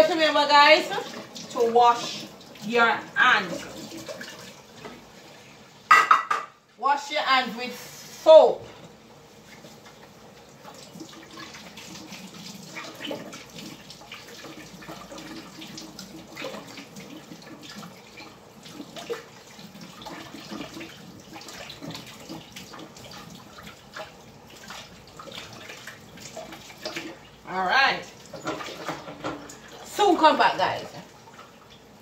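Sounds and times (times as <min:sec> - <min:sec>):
tap running into sink: 0:05.9 - 0:06.6
hands washing with soap: 0:09.3 - 0:27.3.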